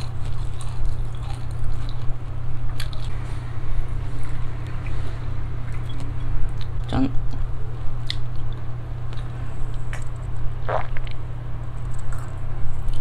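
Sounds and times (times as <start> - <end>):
low steady hum: 0.0 - 13.0
swallowing and mouth sounds: 10.6 - 11.2.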